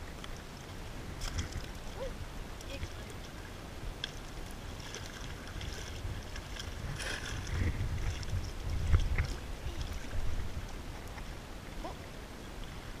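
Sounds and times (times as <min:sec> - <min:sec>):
water lapping against rock: 0:00.0 - 0:13.0
wind buffeting microphone: 0:04.6 - 0:13.0.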